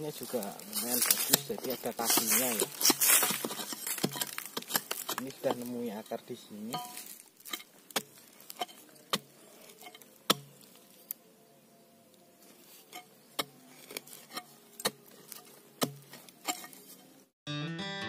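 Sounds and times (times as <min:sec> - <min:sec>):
spade knocking into hard soil: 0:01.1 - 0:05.7, 0:09.9 - 0:10.6, 0:15.8 - 0:16.8.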